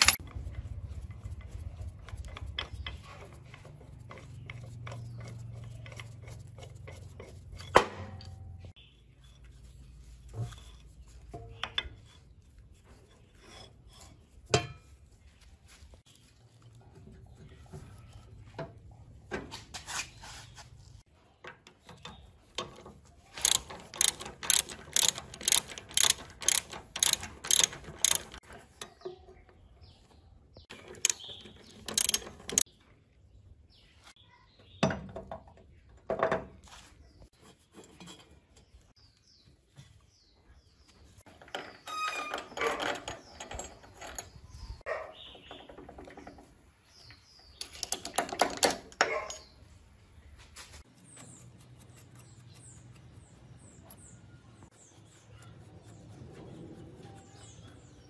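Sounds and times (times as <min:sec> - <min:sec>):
sharp metal clicks: 0:00.0 - 0:00.7, 0:23.4 - 0:29.0, 0:30.7 - 0:32.7.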